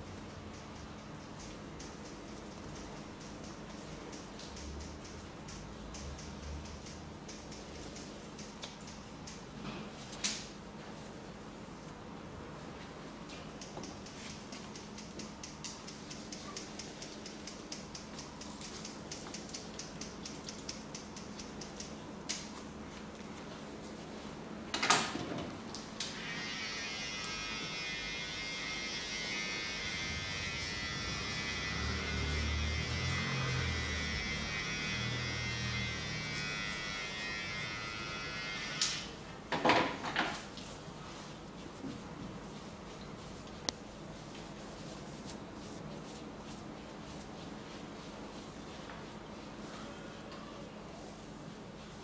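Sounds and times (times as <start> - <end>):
steady electrical hum: 0.0 - 52.0
hands rubbing skin: 40.6 - 49.6.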